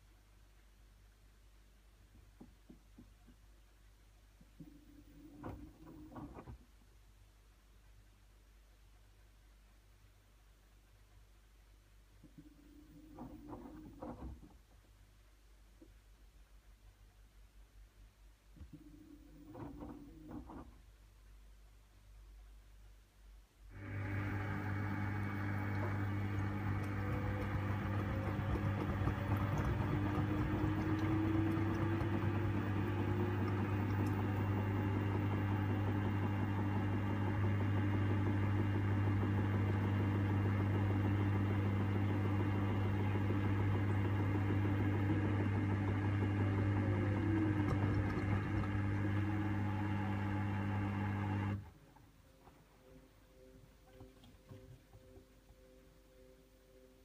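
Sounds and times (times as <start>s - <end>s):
faint motor whine: 23.7s - 57.0s
low hum: 23.7s - 57.0s
washing machine drum spinning: 23.9s - 51.5s.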